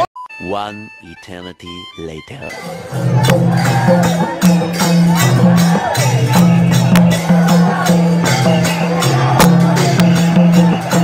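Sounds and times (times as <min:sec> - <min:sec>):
bending melody line: 0:00.0 - 0:11.0
bass line: 0:01.7 - 0:11.0
sharp percussion hits: 0:02.4 - 0:11.0.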